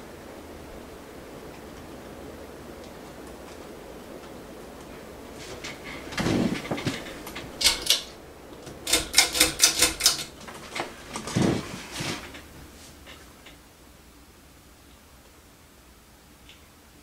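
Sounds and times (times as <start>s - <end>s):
pull chain clicks and rattles: 5.6s - 11.4s.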